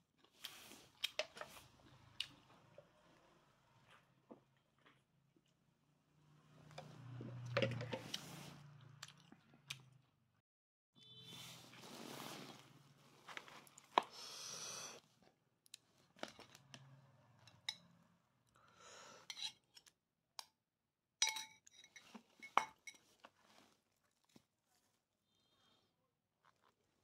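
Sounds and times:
metal spoon clinking ceramic bowl: 0:21.2 - 0:23.0.

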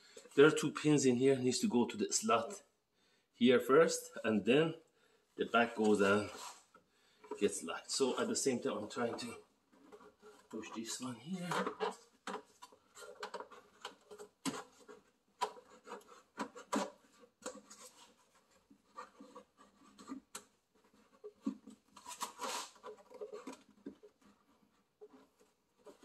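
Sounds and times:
plastic rubbing and scraping: 0:05.4 - 0:26.0.

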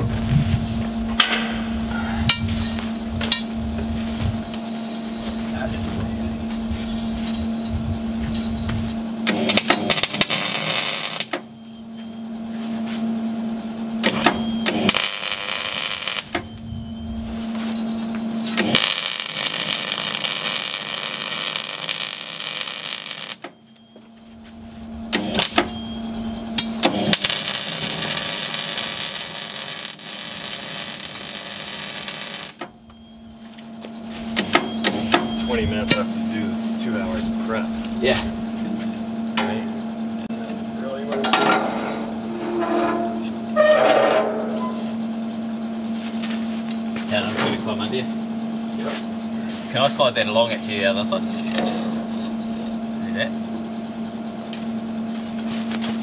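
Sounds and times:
welding arc crackling and hissing: 0:09.2 - 0:11.5, 0:14.0 - 0:23.5, 0:24.8 - 0:25.8, 0:26.6 - 0:32.8.

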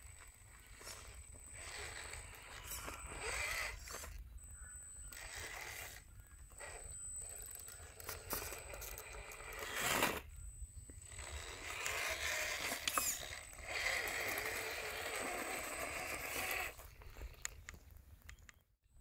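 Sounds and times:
toy car electric motor whining: 0:00.0 - 0:17.8.

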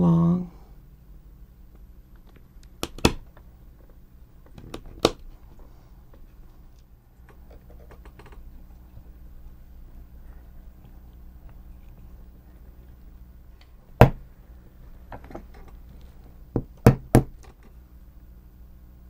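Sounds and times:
plastic snapping clicks: 0:02.2 - 0:03.4.

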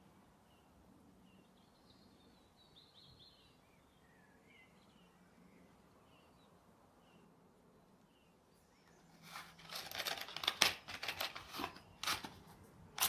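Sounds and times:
matchbox rustling and clicking: 0:09.2 - 0:13.0.

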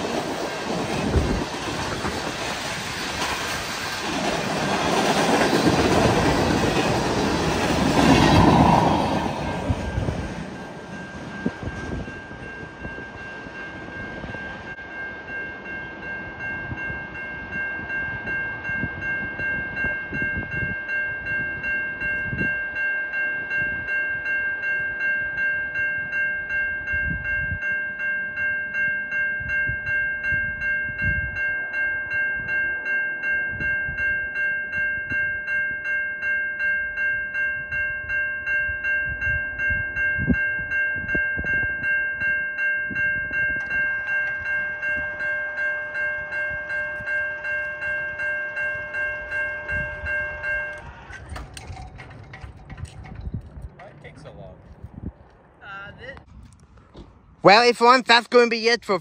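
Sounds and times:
level crossing bell ringing: 0:09.5 - 0:52.7.

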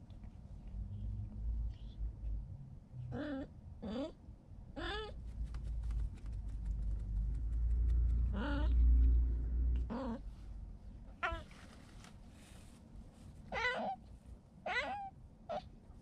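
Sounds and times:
low rumble: 0:05.2 - 0:11.2
cat meowing: 0:13.5 - 0:14.0, 0:14.6 - 0:15.7.

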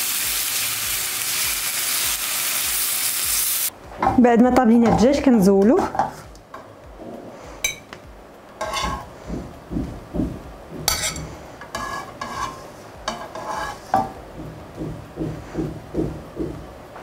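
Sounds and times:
metal tongs clinking on pan: 0:10.9 - 0:11.3.

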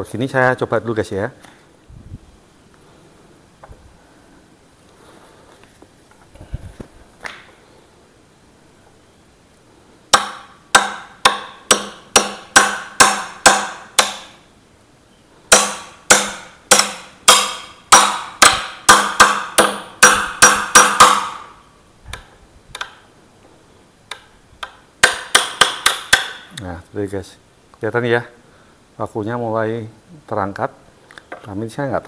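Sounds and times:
hammer striking steel bar: 0:10.1 - 0:14.4, 0:15.5 - 0:21.6, 0:24.6 - 0:26.5.

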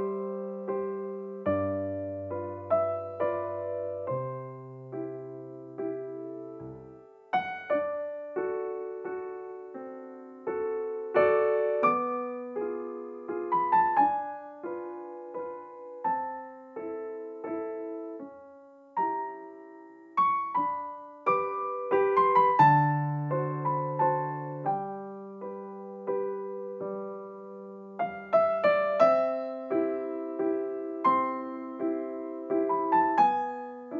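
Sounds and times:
gentle piano music: 0:00.0 - 0:33.9.

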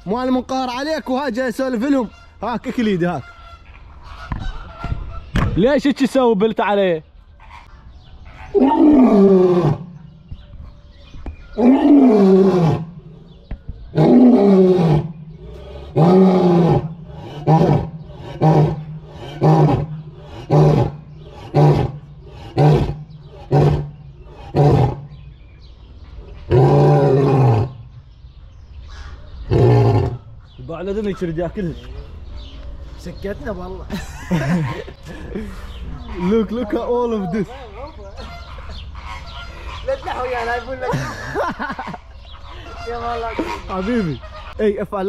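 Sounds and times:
lion roaring: 0:08.5 - 0:10.0, 0:11.6 - 0:13.2, 0:13.9 - 0:25.1, 0:26.5 - 0:27.8, 0:29.4 - 0:30.3.

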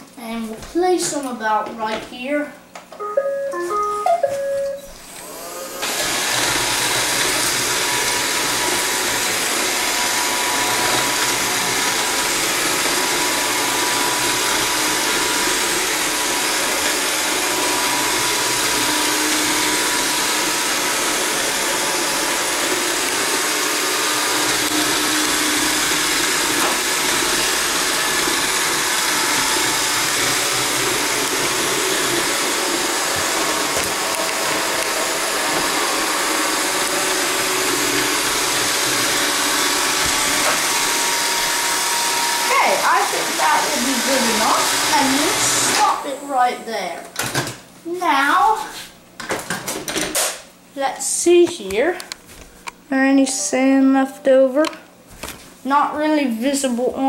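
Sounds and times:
robot vacuum whirring: 0:05.1 - 0:46.5.

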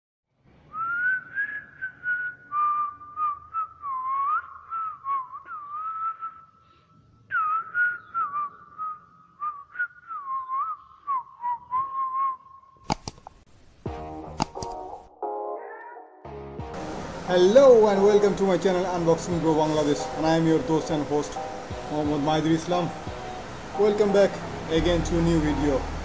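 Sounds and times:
person whistling a tune: 0:00.7 - 0:06.6, 0:07.3 - 0:12.7.

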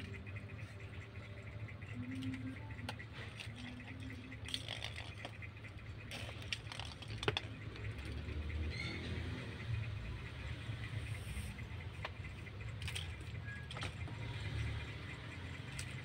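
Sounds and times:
plastic ball knocking and rolling: 0:06.1 - 0:08.3.

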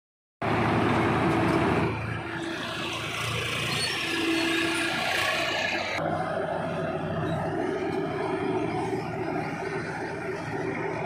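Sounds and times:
diesel engines droning: 0:00.4 - 0:11.0.

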